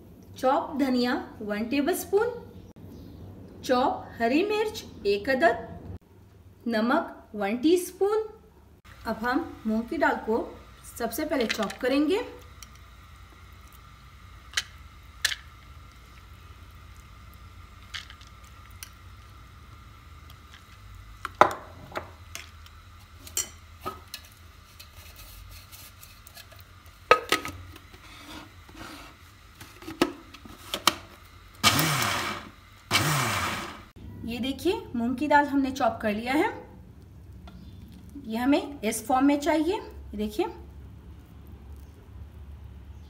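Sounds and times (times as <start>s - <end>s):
electric chopper motor: 31.5s - 34.0s.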